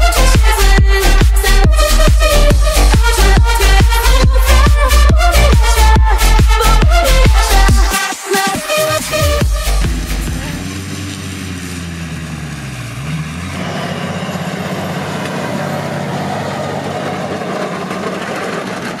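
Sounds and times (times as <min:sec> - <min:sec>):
tractor engine: 0:08.7 - 0:19.0.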